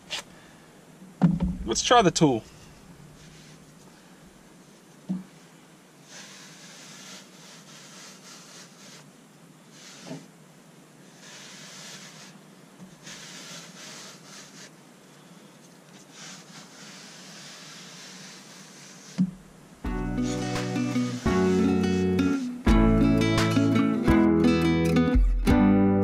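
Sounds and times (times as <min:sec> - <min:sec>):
brief low thumps: 0:01.2 - 0:01.7
brush rubbing on carpet: 0:02.5 - 0:03.9, 0:04.6 - 0:09.1, 0:09.7 - 0:10.3, 0:11.0 - 0:14.8, 0:15.6 - 0:19.3, 0:20.0 - 0:22.7.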